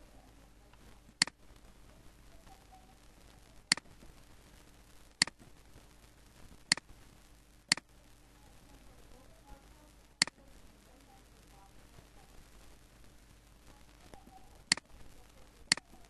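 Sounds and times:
computer mouse clicks: 0:03.7 - 0:03.9, 0:06.7 - 0:06.9, 0:07.7 - 0:07.9, 0:14.2 - 0:14.9, 0:15.7 - 0:16.0.

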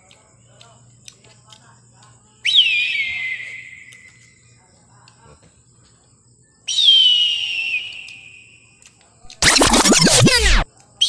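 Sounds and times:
high whistle falling in pitch: 0:02.5 - 0:04.2, 0:06.7 - 0:08.6.

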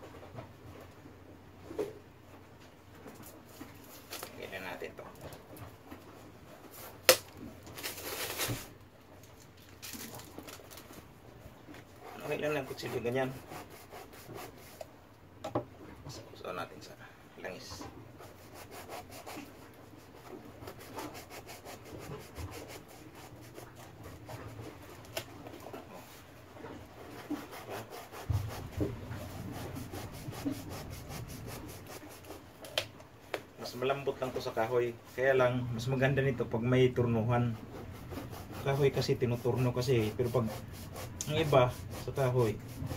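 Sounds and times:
tape tearing: 0:07.0 - 0:08.7
light scratching: 0:11.7 - 0:14.9, 0:37.2 - 0:42.9
knife scraping foam: 0:12.0 - 0:14.9, 0:18.2 - 0:25.3, 0:27.0 - 0:32.6, 0:37.4 - 0:42.9.

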